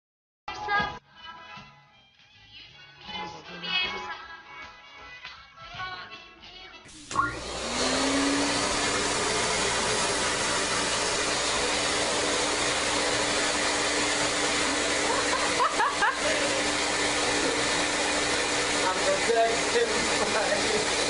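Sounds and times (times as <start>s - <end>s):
vacuum cleaner running: 6.9s - 21.0s.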